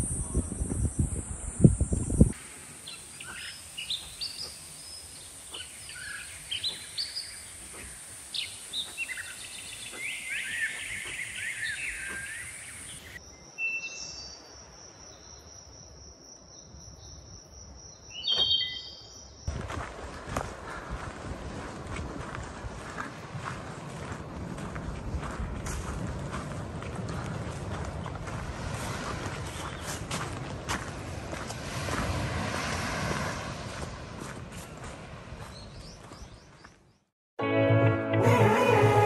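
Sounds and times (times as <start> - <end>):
birds chirping: 2.1 - 13.2, 18.0 - 19.2, 35.4 - 37.1.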